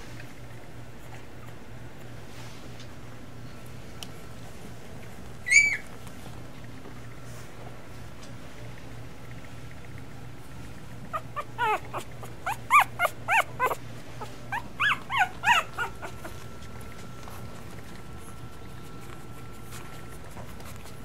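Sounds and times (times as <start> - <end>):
puppy whimpering and squealing: 5.4 - 5.9, 11.1 - 16.6.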